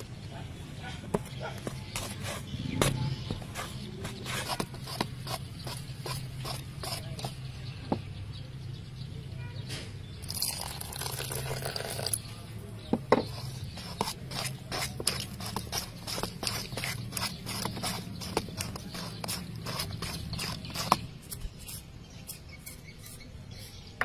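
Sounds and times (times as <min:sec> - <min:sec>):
spoon stirring thick batter: 0:01.1 - 0:08.2, 0:10.2 - 0:24.0
spoon scraping against bowl: 0:02.0 - 0:07.5, 0:13.2 - 0:24.0.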